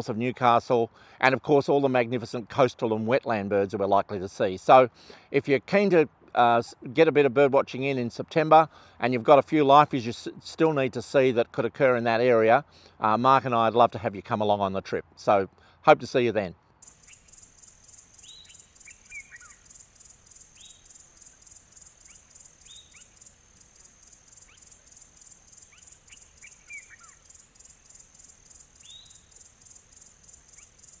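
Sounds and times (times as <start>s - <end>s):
insects pulsing chorus: 16.8s - 31.0s.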